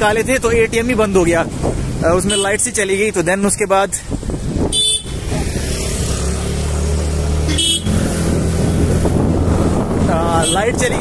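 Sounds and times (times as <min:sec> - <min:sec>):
road noise: 0:00.0 - 0:11.0
horn toots: 0:04.7 - 0:05.2, 0:07.4 - 0:08.0.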